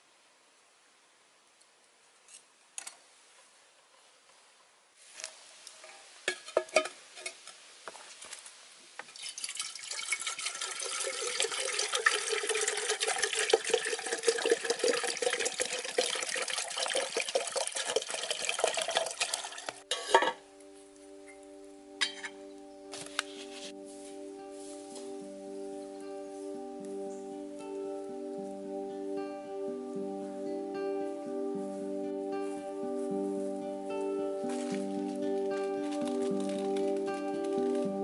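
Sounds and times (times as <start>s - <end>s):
water pouring into metal kettle: 9.2s - 19.8s
metal teapot clink: 19.9s - 20.4s, 22.0s - 22.4s.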